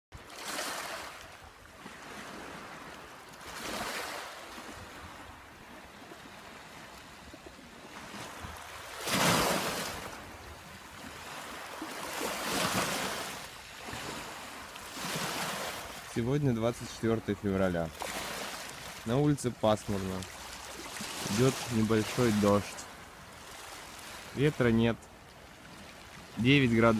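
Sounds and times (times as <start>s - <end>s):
waves washing on pebble beach: 0.2s - 7.0s, 7.7s - 16.8s, 17.7s - 26.9s.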